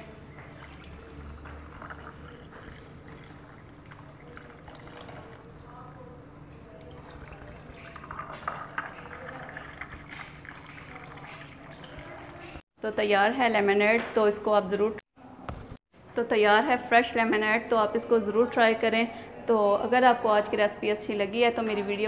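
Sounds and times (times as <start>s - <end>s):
liquid pouring over ice: 0.5s - 5.6s, 6.8s - 12.5s.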